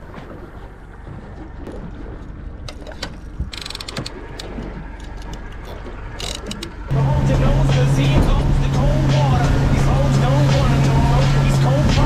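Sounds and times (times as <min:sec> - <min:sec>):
low boat rumble: 0:00.0 - 0:12.0
fishing reel ratcheting: 0:03.5 - 0:04.2.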